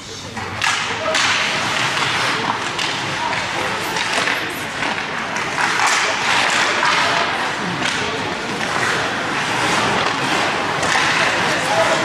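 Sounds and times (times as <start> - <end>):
sticks and puck clacking: 0.4 - 12.0
skates scraping on ice: 0.6 - 12.0.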